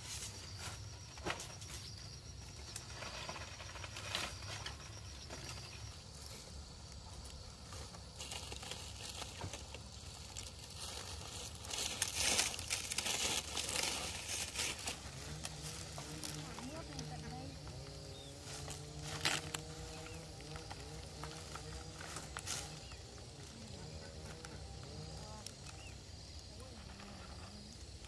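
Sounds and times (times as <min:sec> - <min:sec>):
rustling and crinkling: 0:00.0 - 0:28.0.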